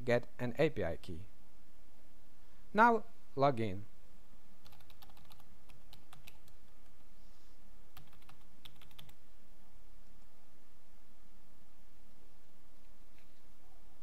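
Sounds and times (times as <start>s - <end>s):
computer keyboard typing: 4.6s - 7.0s, 7.9s - 9.2s.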